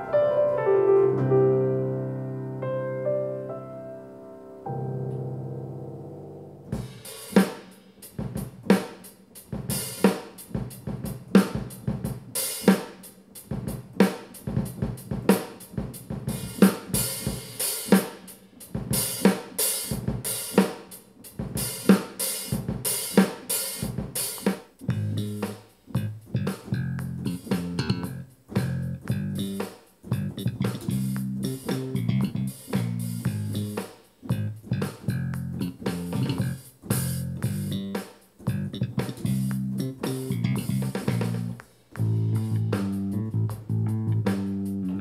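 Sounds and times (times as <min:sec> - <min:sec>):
sustained piano notes: 0:00.0 - 0:06.8
drum kit beat: 0:06.6 - 0:45.0
bass line: 0:24.8 - 0:45.0.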